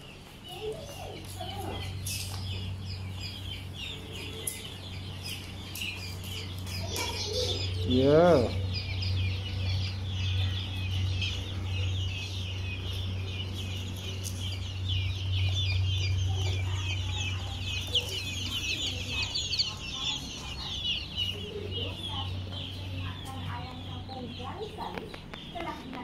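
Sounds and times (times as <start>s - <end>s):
birds chirping and chattering: 0.0s - 26.0s
chickens clucking: 0.0s - 26.0s
steady low hum: 0.0s - 26.0s.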